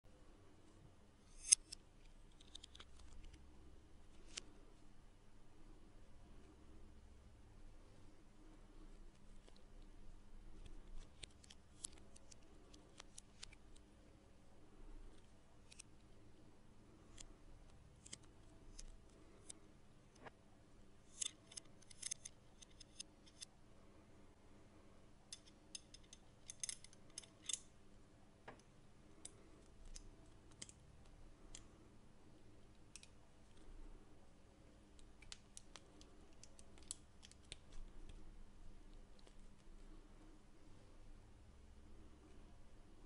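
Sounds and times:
metal wire and bolt clicking: 21.1s - 23.5s, 25.3s - 27.8s.

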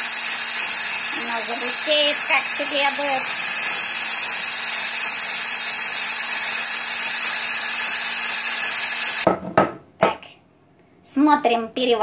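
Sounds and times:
hand blender whisking in glass: 0.0s - 9.3s
knock: 9.3s - 10.2s.

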